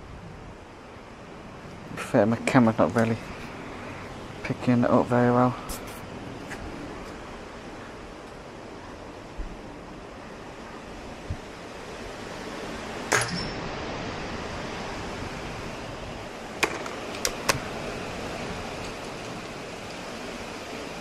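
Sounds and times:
steady background hiss: 0.0s - 21.0s
high metallic ring: 13.1s - 13.8s
rifle handling clicks: 16.7s - 17.6s.

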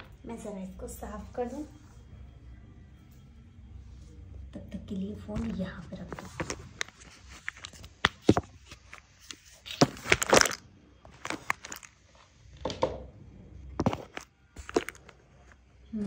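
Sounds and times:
handling knocks and rustles: 5.4s - 11.9s.

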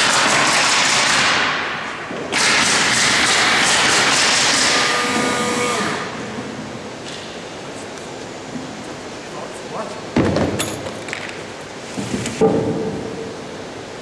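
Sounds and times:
handheld power tool running: 3.1s - 6.1s.

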